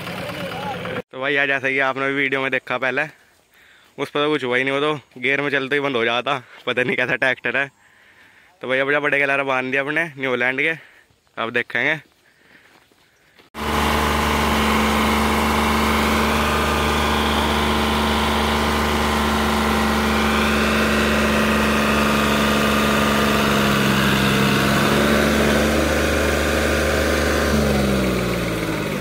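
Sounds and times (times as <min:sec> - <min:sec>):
tractor diesel engines straining: 0:00.0 - 0:01.1, 0:13.5 - 0:29.0.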